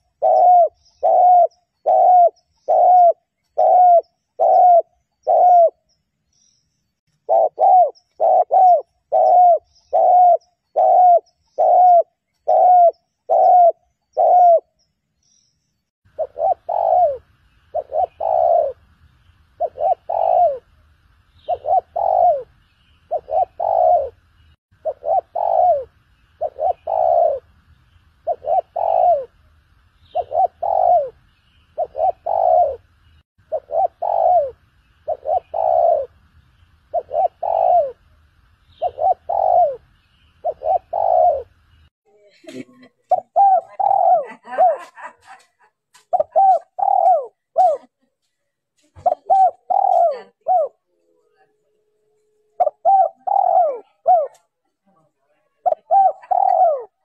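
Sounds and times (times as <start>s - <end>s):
dove cooing: 0.0s - 5.9s, 7.2s - 14.8s, 16.1s - 18.8s, 19.6s - 20.8s, 21.4s - 24.2s, 24.8s - 27.5s, 28.2s - 29.4s, 30.1s - 36.2s, 36.9s - 38.1s, 38.8s - 41.6s, 43.1s - 45.0s, 46.1s - 47.9s, 49.0s - 51.5s, 52.6s - 54.5s, 55.6s - 57.0s.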